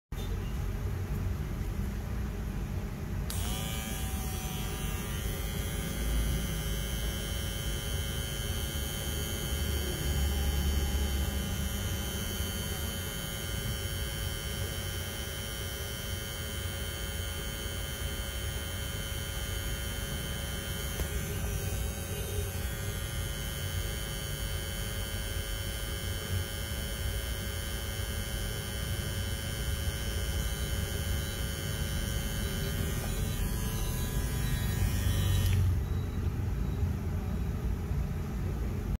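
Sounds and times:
hair trimmer whining: 3.3 - 35.8.

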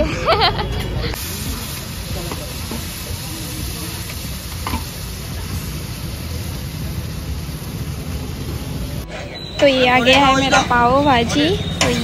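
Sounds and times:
steady hissing noise: 1.2 - 9.3.

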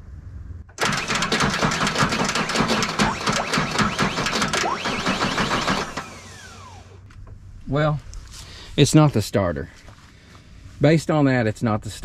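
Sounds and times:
starter motor cranking engine: 0.8 - 7.0.

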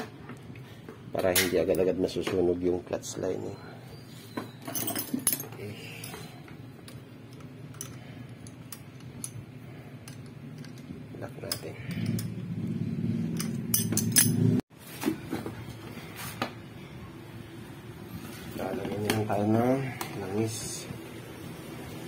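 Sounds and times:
wrench clinking on metal: 4.6 - 12.4, 13.4 - 14.5.

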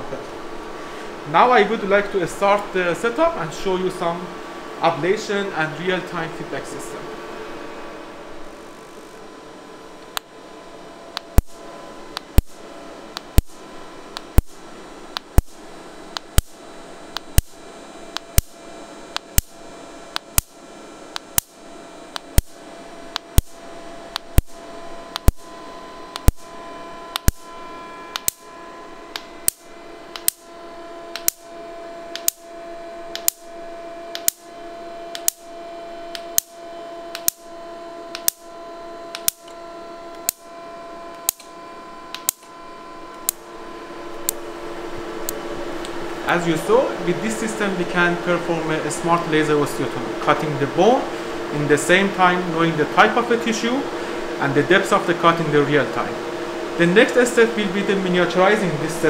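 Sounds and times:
steady equipment hum: 0.0 - 59.0
laser pulses snapping: 11.2 - 26.5, 27.1 - 27.5, 28.1 - 28.4, 29.1 - 30.5, 31.1 - 31.5, 32.1 - 32.5, 33.1 - 33.5, 34.1 - 34.4, 35.1 - 35.5, 36.1 - 37.5, 38.1 - 38.5, 39.1 - 40.5, 41.1 - 41.5, 42.1 - 42.5.

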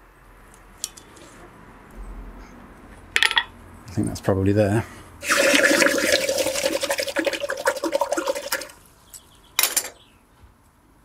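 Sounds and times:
hot iron sizzling in water: 5.2 - 8.8.

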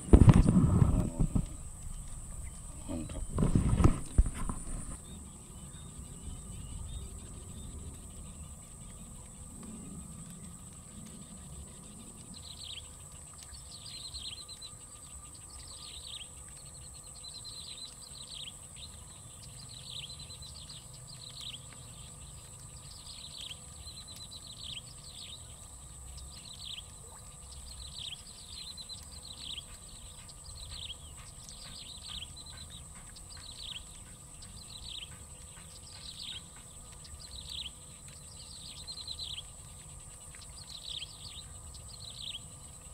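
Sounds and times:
bird calling: 0.0 - 5.0
low rumble: 0.0 - 5.0.

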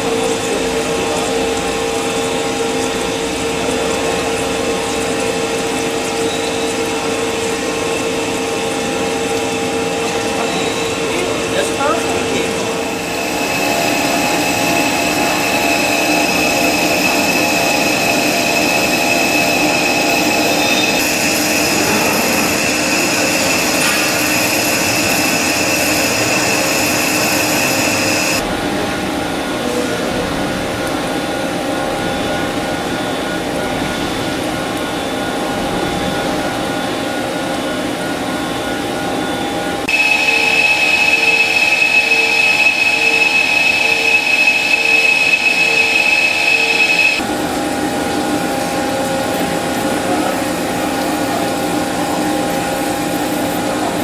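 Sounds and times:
metal lathe whining: 4.8 - 28.4, 39.8 - 47.2
hiss of cutting: 13.0 - 28.4, 39.9 - 47.2.

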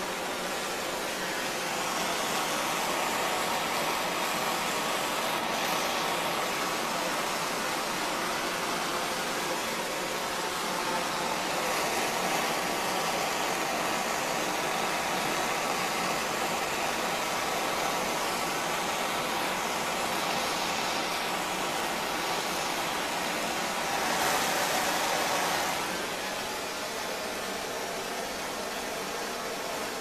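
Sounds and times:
gas torch hissing: 0.0 - 30.0.

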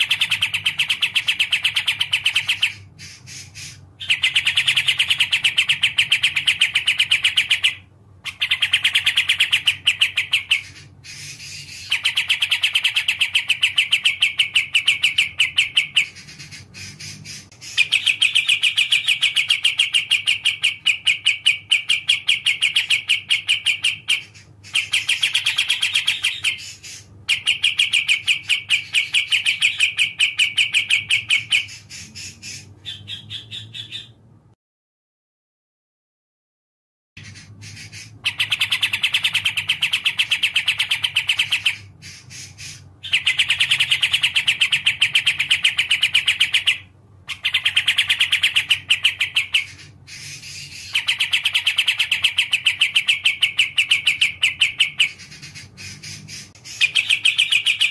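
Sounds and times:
bird singing chattering trill: 0.0 - 34.3, 37.2 - 57.9.

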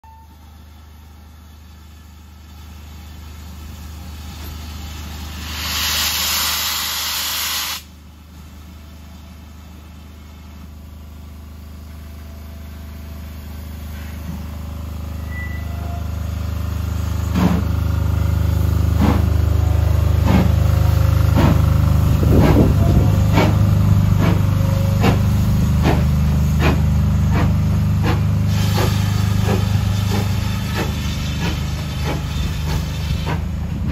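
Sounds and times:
rush of steam: 2.5 - 8.0, 16.8 - 33.9
steam locomotive exhaust chuffs: 2.6 - 8.0, 16.4 - 33.9
steady low rumble: 17.8 - 24.4.

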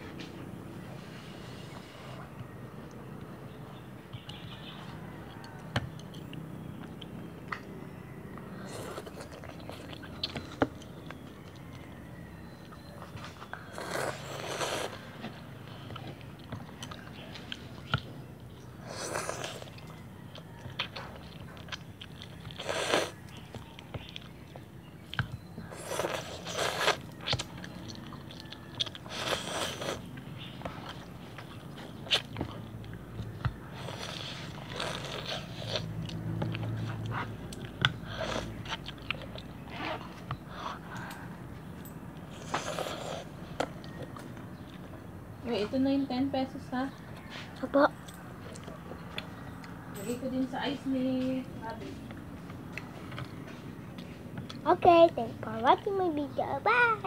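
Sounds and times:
wet chewing: 4.2 - 45.2.

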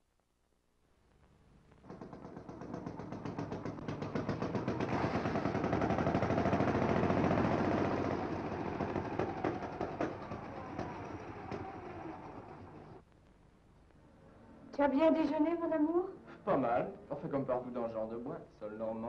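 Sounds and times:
old car engine putt-putt: 1.9 - 13.0.

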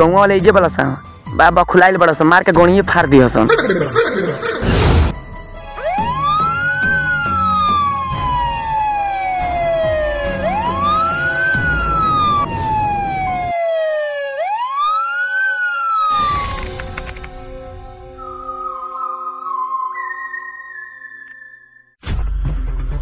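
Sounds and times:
ambulance siren wailing: 5.6 - 17.3, 17.9 - 21.7.

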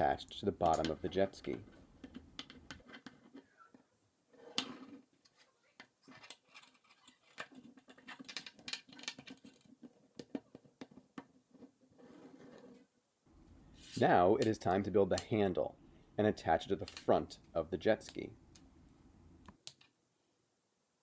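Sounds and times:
plastic pieces clicking and rattling: 6.2 - 10.4.

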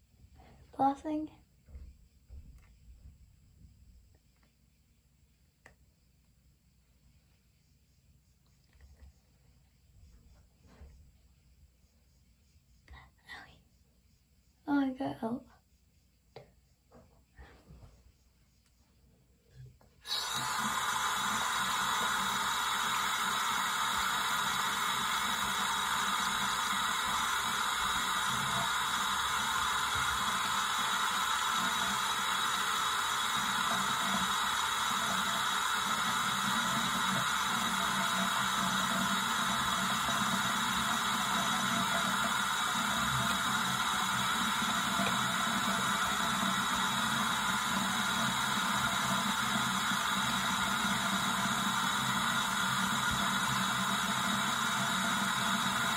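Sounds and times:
faucet running into sink: 20.0 - 55.9.

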